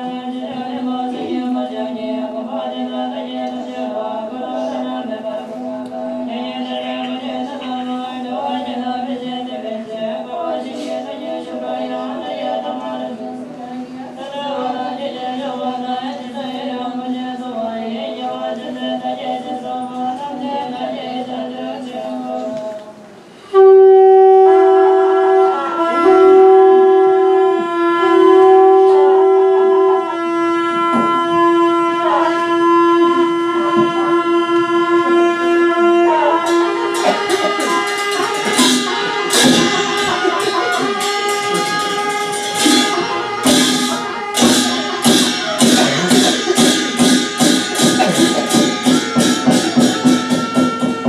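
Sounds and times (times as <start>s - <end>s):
nuns chanting: 0.0s - 51.0s
horns blasting: 23.4s - 51.0s
drums and percussion: 36.4s - 51.0s.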